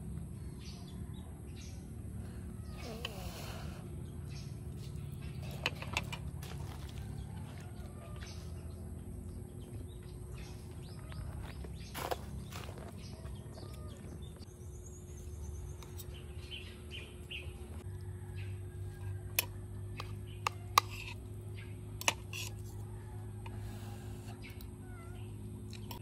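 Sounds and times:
birds chirping: 0:00.0 - 0:18.6.

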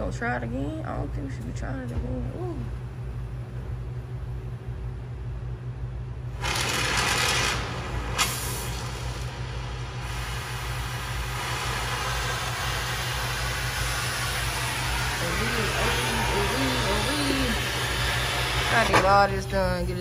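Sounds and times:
steady low hum: 0:00.0 - 0:20.0
gas torch hissing: 0:06.3 - 0:19.4
sharp pop of torch: 0:08.1 - 0:09.2.

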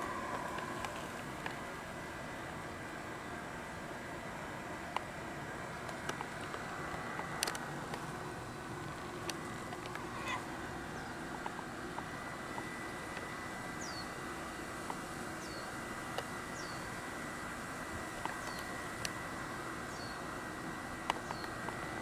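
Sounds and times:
outdoor hum and hiss: 0:00.0 - 0:22.0
bird chirping: 0:13.8 - 0:14.2, 0:15.4 - 0:15.8, 0:16.5 - 0:17.0, 0:18.3 - 0:18.8, 0:19.9 - 0:20.3, 0:21.2 - 0:21.6
light clicks: 0:21.0 - 0:21.8.

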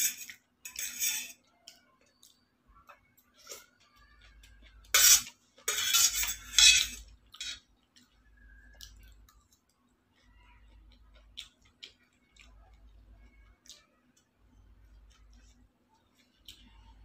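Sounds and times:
fork scraping metal plates: 0:00.0 - 0:01.4, 0:04.9 - 0:07.6.

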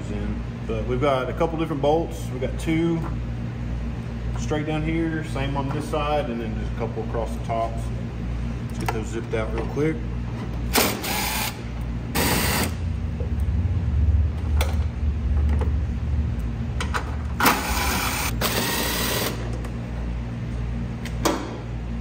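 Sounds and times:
impact driver bursts: 0:10.7 - 0:11.6, 0:12.2 - 0:12.8.

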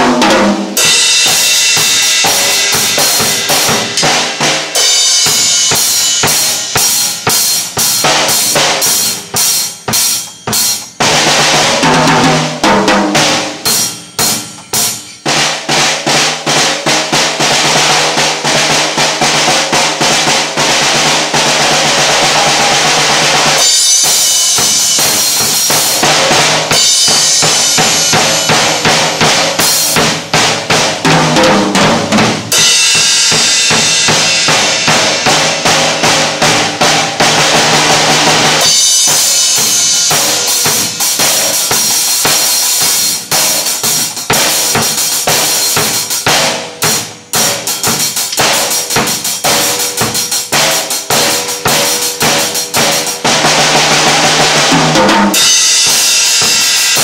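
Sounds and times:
cymbals crashing: 0:00.0 - 0:11.2, 0:12.8 - 0:15.7, 0:21.8 - 0:30.3, 0:32.5 - 0:53.2, 0:55.2 - 0:57.0
drum kit playing: 0:00.0 - 0:57.0.

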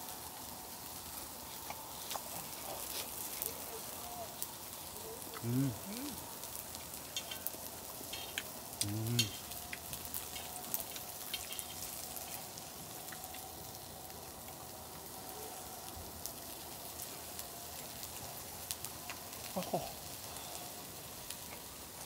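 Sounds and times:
food sizzling as it fries: 0:00.0 - 0:22.0
brief vocal sound: 0:05.4 - 0:06.2, 0:08.8 - 0:09.3.

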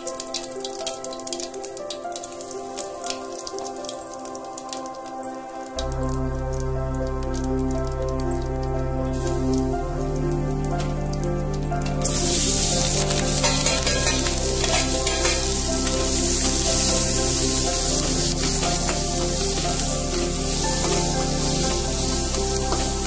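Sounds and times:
background music: 0:00.0 - 0:23.0
food sizzling in hot oil: 0:09.1 - 0:10.0, 0:12.0 - 0:23.0.

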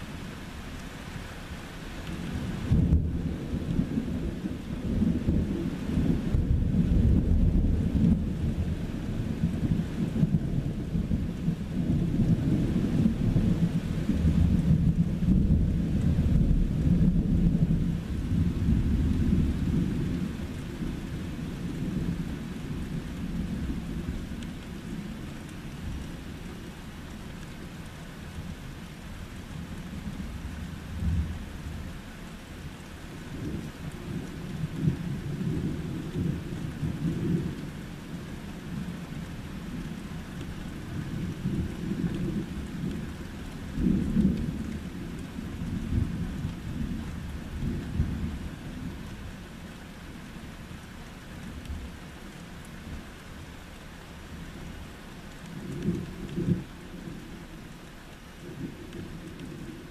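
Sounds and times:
steady rain: 0:00.0 - 0:59.9
thunder rumbling: 0:02.3 - 0:26.8, 0:40.7 - 0:49.1, 0:58.4 - 0:59.9.

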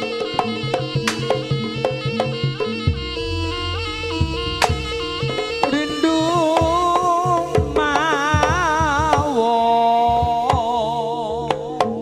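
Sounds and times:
drum strokes: 0:00.0 - 0:09.5
shawm melody: 0:00.0 - 0:12.0
sharp percussion strikes: 0:03.9 - 0:08.7.

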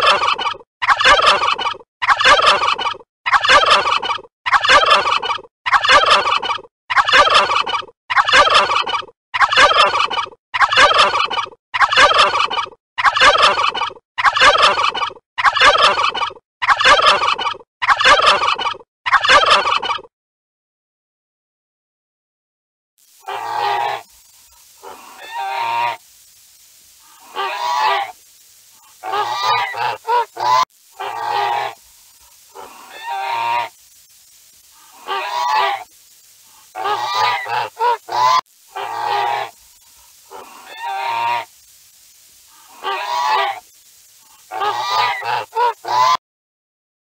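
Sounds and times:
goose honking: 0:24.8 - 0:26.0, 0:27.2 - 0:28.2, 0:29.0 - 0:31.8, 0:32.6 - 0:33.7, 0:35.0 - 0:35.9, 0:36.8 - 0:39.5, 0:40.3 - 0:41.5, 0:42.7 - 0:43.6, 0:44.5 - 0:46.2.

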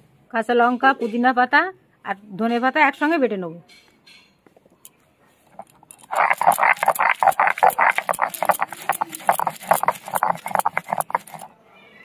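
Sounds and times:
stone grinding on stone: 0:05.5 - 0:11.5.

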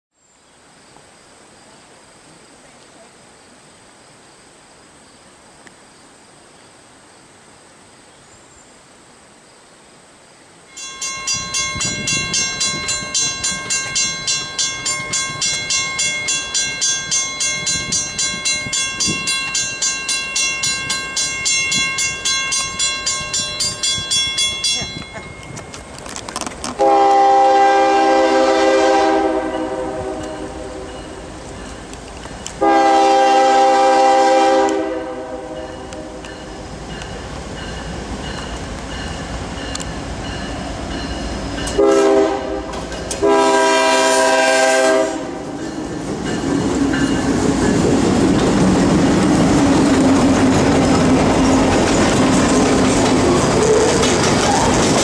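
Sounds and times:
crossing warning bell ringing: 0:10.7 - 0:26.0, 0:26.8 - 0:34.2, 0:34.9 - 0:55.0
locomotive air horn: 0:26.8 - 0:31.0, 0:32.6 - 0:36.2, 0:41.8 - 0:45.5.

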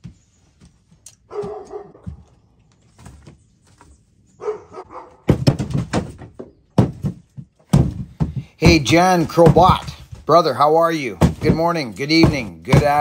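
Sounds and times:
dog barking: 0:01.3 - 0:02.2, 0:04.4 - 0:05.3
firewood clattering: 0:05.2 - 0:13.0.

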